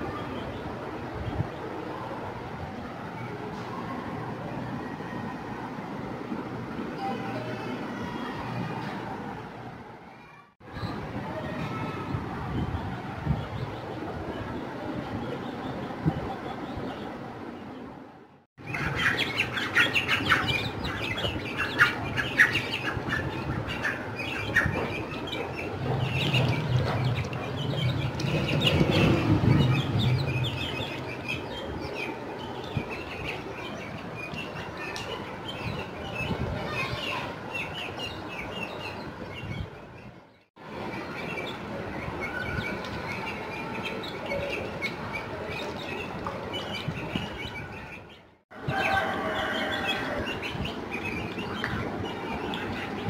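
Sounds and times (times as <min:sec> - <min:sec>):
chicks and ducklings peeping: 0:18.6 - 0:40.1, 0:40.8 - 0:53.0.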